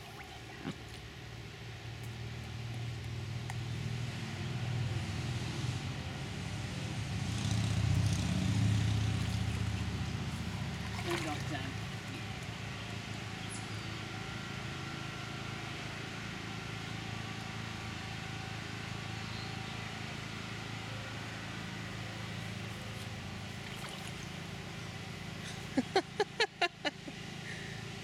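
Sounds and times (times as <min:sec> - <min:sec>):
low motor hum: 0:00.0 - 0:05.0, 0:07.5 - 0:28.0.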